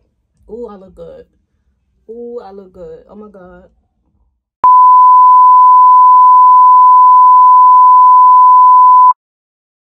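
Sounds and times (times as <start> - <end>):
loud electronic beep: 4.6 - 9.2.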